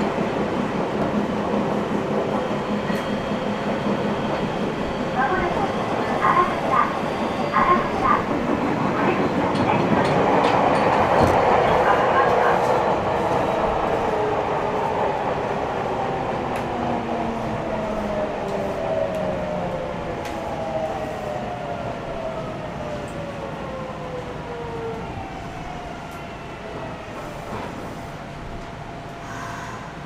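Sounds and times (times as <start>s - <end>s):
train running gear rumble: 0.0s - 23.8s.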